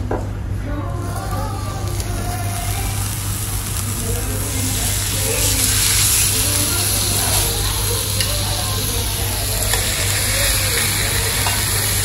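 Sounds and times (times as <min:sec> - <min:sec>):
meat sizzling on a griddle: 0:01.0 - 0:12.0.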